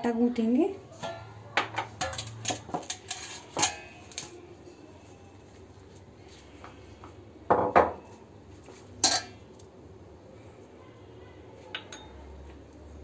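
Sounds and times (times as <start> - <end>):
glass ringing clink: 11.8 - 12.2.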